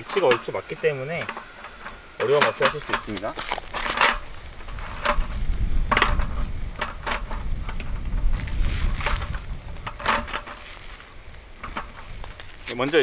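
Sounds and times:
low wind rumble on microphone: 1.4s - 13.0s
metal slats clicking and clattering: 9.8s - 10.6s.

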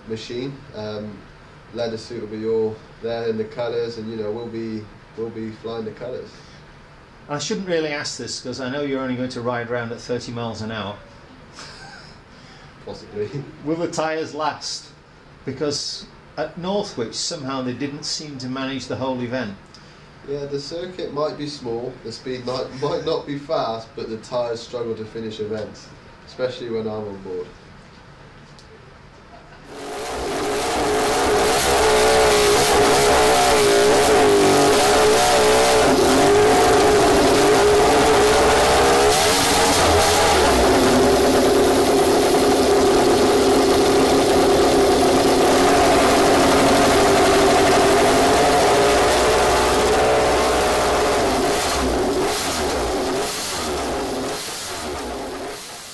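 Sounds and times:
racing engine at high revs: 29.7s - 55.9s.

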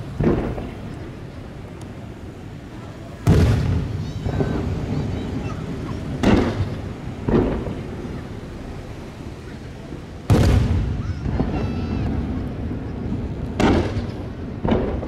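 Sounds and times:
firework shells booming: 0.0s - 1.2s, 3.2s - 8.9s, 10.2s - 15.0s.

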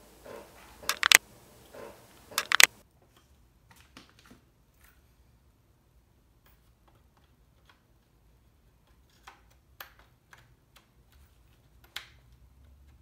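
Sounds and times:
hand clicking on metal case: 0.9s - 1.2s, 2.4s - 2.7s
light clicks and taps: 0.9s - 1.2s, 2.4s - 3.3s.

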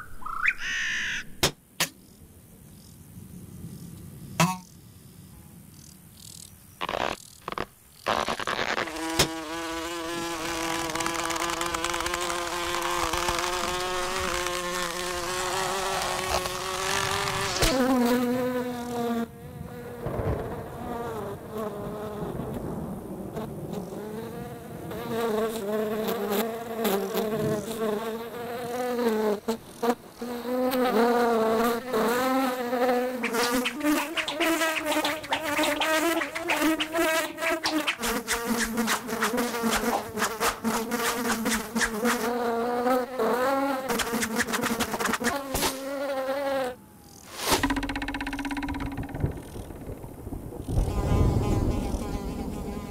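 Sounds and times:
cartoon fly wings buzzing: 6.8s - 19.1s, 25.6s - 52.9s.

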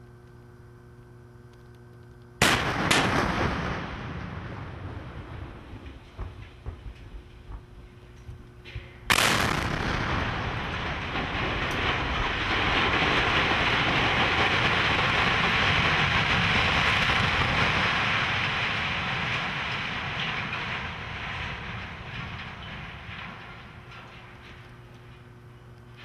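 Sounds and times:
explosive blast: 2.4s - 7.0s, 9.1s - 23.6s
structure crashing and collapsing: 9.7s - 24.5s.

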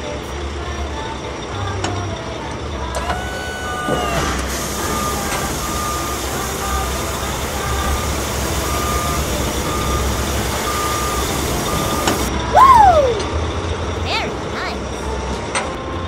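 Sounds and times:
low engine rumble: 0.0s - 16.0s
dirt pouring hiss: 3.6s - 12.3s
short beeps: 7.7s - 12.3s.

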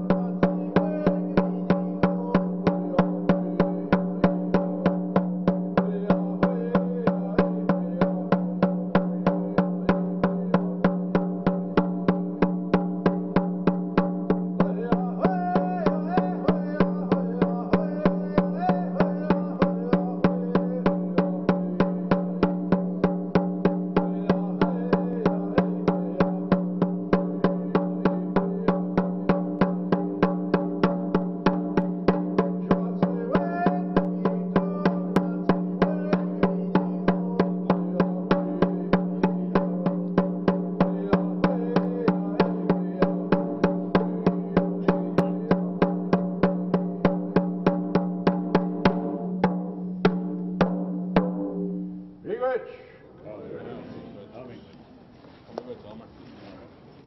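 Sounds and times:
person singing: 0.0s - 4.8s, 5.8s - 10.8s, 14.6s - 22.3s, 24.0s - 29.5s, 32.6s - 40.2s, 40.8s - 45.9s
hand drum beating: 0.0s - 52.0s.

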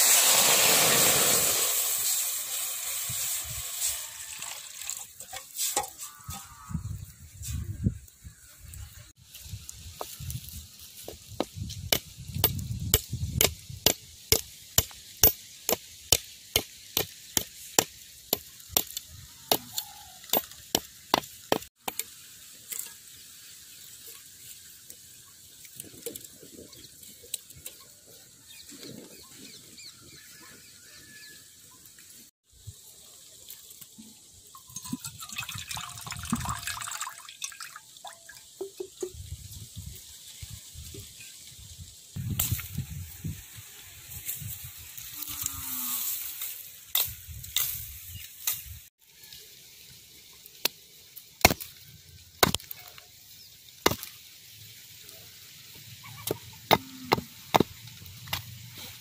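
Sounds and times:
water splashing into steel bowl: 34.7s - 38.5s.

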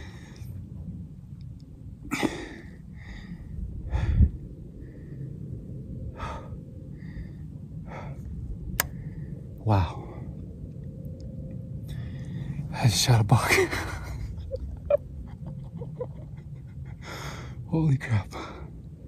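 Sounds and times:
man breathing hard and gasping: 2.1s - 5.4s, 6.1s - 9.4s, 17.0s - 17.6s.

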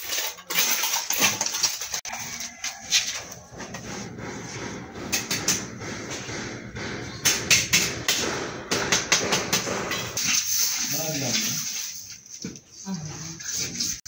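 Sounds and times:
sharp taps and knocks: 3.8s - 10.2s.

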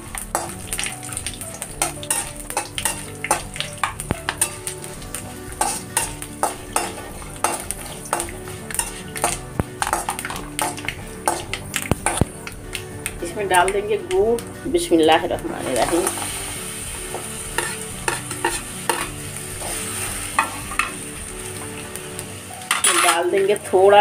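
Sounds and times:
spices sizzling in hot oil: 0.0s - 24.0s
metal spatula scraping pan: 1.8s - 12.4s, 17.1s - 21.0s, 22.6s - 23.3s.

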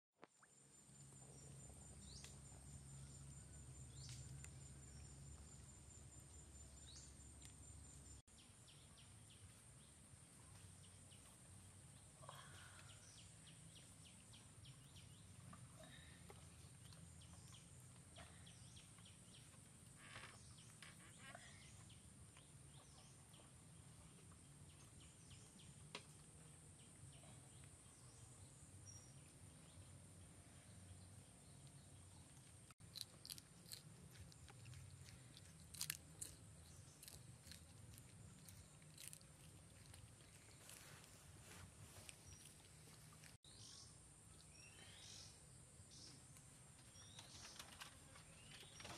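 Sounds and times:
clicks and rustles: 46.8s - 48.9s.

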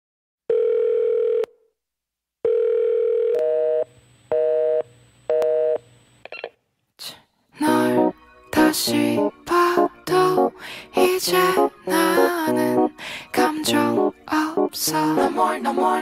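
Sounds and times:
telephone dial tone: 0.5s - 1.5s, 2.5s - 3.8s.

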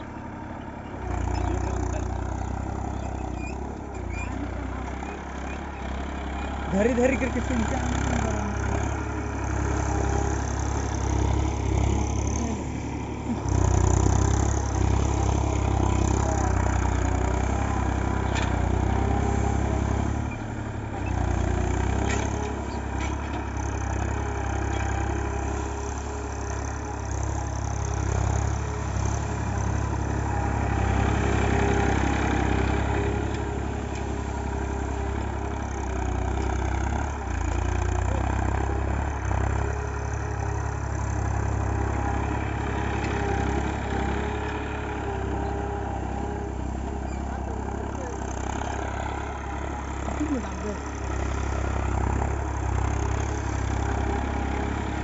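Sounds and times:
diesel tractor engine running: 0.0s - 55.0s.

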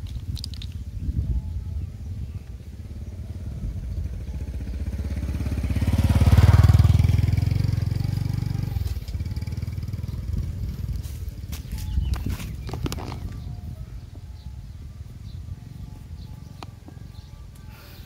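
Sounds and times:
vehicle engine passing by: 2.1s - 11.6s.

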